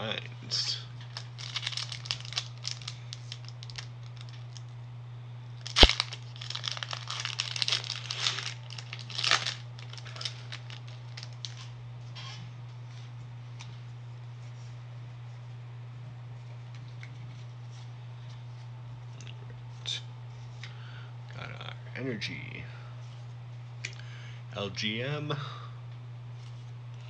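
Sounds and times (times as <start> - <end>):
steady low hum: 0.0 - 27.0
foil wrapper crinkling and tearing: 1.0 - 4.7, 5.6 - 11.7.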